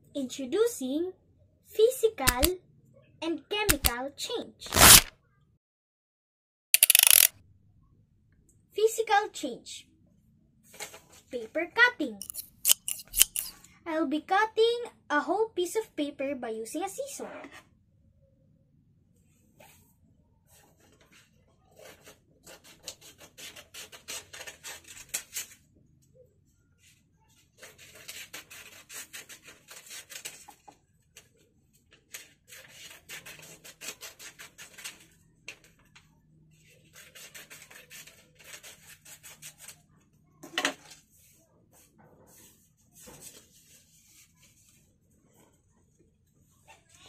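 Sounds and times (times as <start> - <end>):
scissors snipping paper: 2.3 - 2.5, 3.7 - 3.9, 4.7 - 5.1, 6.8 - 7.3, 12.2 - 13.6, 36.9 - 39.8.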